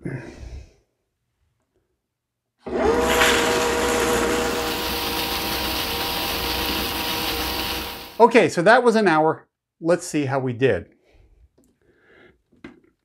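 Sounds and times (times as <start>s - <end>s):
tumbler motor humming: 2.7s - 8.2s.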